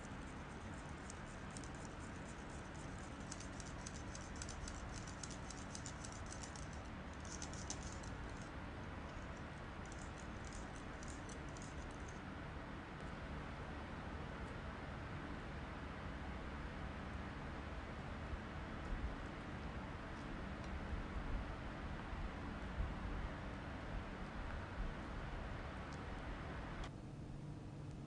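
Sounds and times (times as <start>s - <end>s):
faint steady hiss: 0.0s - 28.0s.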